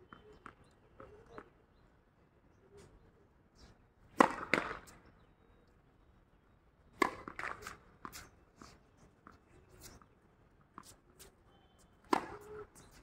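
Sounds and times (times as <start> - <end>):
tennis balls hit by racket: 4.1 - 5.0, 6.9 - 8.3, 12.0 - 13.0
tennis balls bouncing on court: 4.2 - 5.0, 6.9 - 8.2, 12.0 - 13.0.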